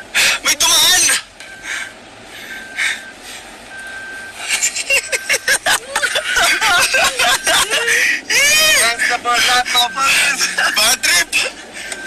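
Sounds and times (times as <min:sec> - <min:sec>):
man speaking excitedly: 0:00.3 - 0:01.2, 0:08.3 - 0:11.6.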